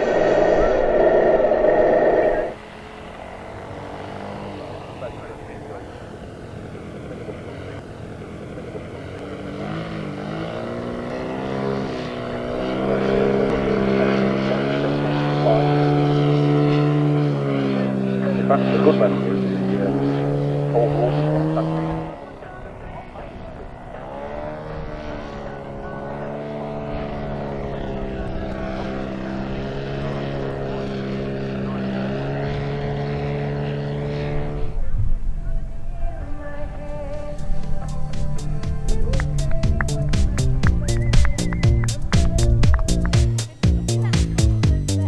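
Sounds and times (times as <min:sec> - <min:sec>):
model airplane engine drone: 0:00.0 - 0:45.0.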